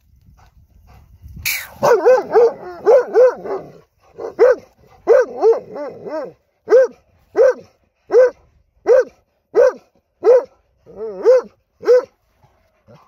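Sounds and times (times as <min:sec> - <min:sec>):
dog barking: 0:01.8 - 0:12.2.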